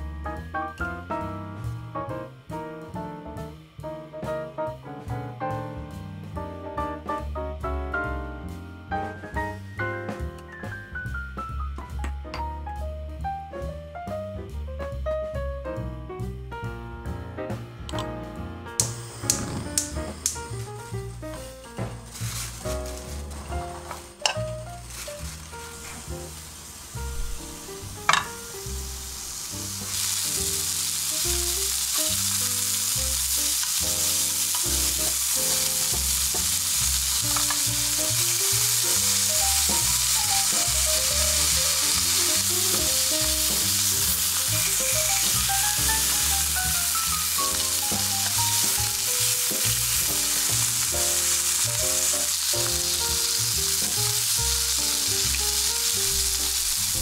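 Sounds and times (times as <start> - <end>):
meat sizzling in a frying pan: 18.8 - 57.0.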